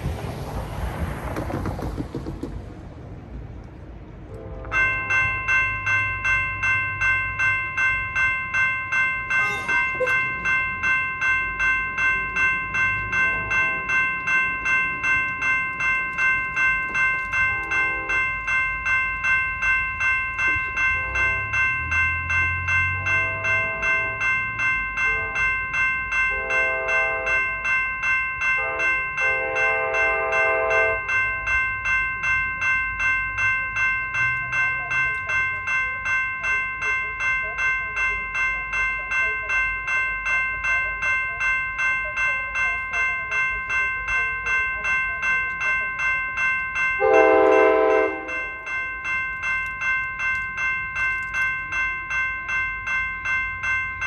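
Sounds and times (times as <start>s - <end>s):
low locomotive rumble: 0.0s - 54.0s
railroad crossing bell ringing: 3.7s - 54.0s
locomotive air horn blasts: 4.3s - 4.9s, 17.6s - 18.2s, 25.1s - 25.5s, 26.3s - 27.3s, 28.6s - 31.0s, 47.0s - 48.4s.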